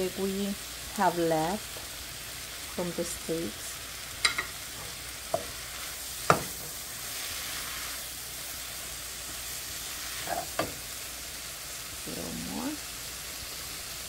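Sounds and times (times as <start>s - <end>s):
vegetables sizzling in a skillet: 0.0s - 14.0s
spatula knocking against pan: 6.3s - 6.6s.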